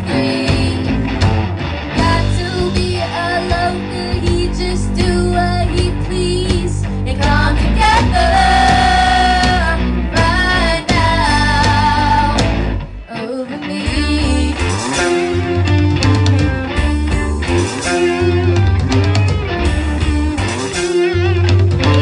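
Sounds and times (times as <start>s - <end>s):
women singing: 0.0s - 1.1s, 2.0s - 15.5s
drums: 0.0s - 22.0s
electric guitars: 0.0s - 22.0s.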